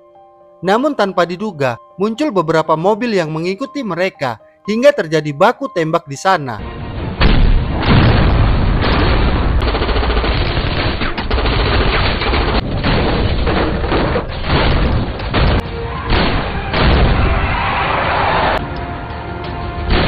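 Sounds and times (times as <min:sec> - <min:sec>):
rapid gunfire: 0:08.8 - 0:17.2.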